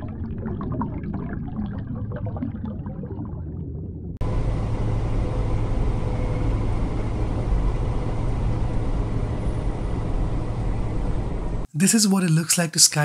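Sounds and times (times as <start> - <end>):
vehicle engine and road noise: 4.2 - 11.7.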